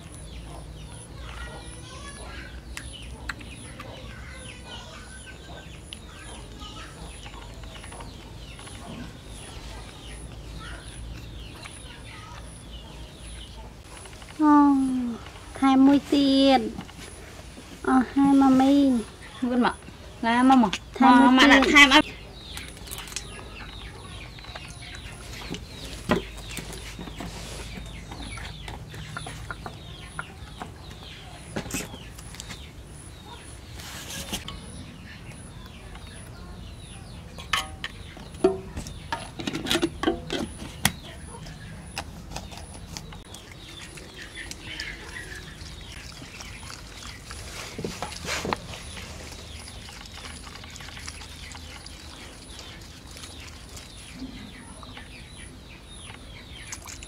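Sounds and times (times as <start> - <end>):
wet clicking mouth sounds: 2.7 - 4.0, 42.0 - 47.4
monkey sucking and chewing fingers: 42.0 - 54.1.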